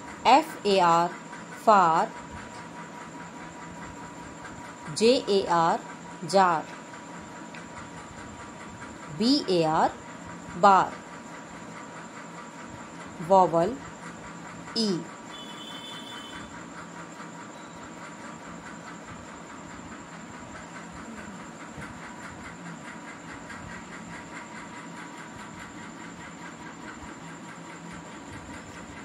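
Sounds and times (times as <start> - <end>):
faint constant hum: 0.0 - 29.0.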